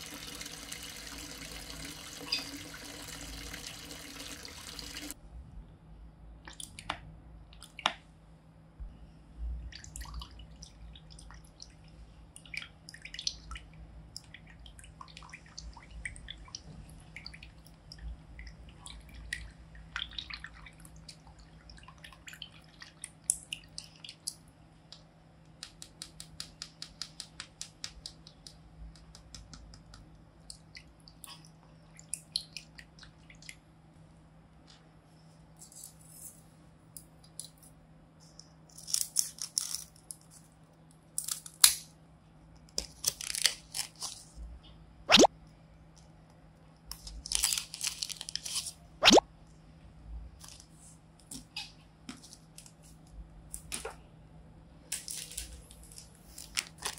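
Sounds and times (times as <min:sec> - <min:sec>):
paper and plastic crinkling: 0:42.8 - 0:44.4, 0:46.9 - 0:48.8, 0:54.9 - 0:56.9.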